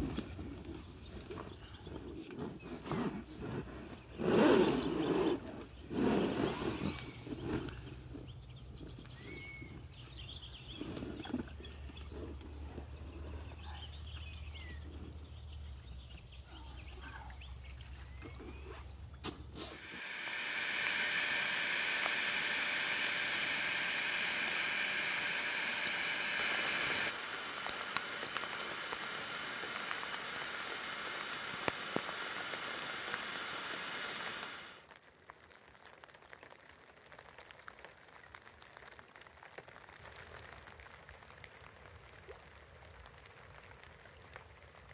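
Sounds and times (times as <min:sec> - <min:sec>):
rain falling: 0:21.3 - 0:44.9.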